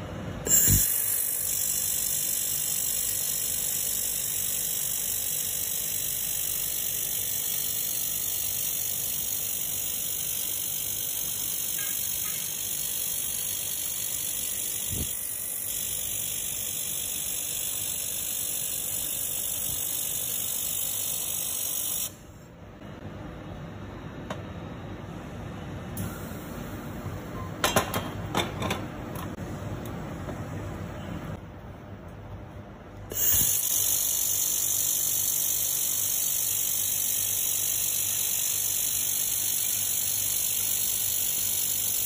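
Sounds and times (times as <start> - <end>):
laser welder hissing: 0.5 - 22.2, 33.1 - 42.0.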